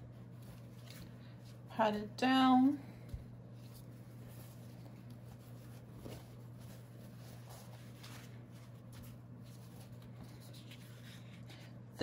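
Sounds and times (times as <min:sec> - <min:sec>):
paper towel rustling: 0:00.0 - 0:01.8, 0:03.4 - 0:11.8
steady low hum: 0:00.0 - 0:12.0.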